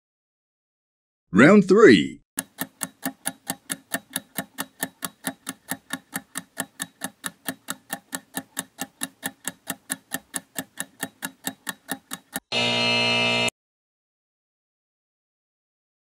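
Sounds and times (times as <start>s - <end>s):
rapid clock-like ticks: 2.4s - 12.5s.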